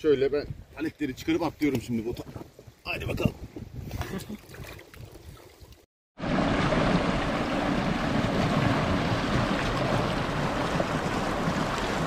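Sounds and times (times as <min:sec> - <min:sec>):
wind: 0:00.0 - 0:12.0
water churning in boat wake: 0:06.2 - 0:12.0.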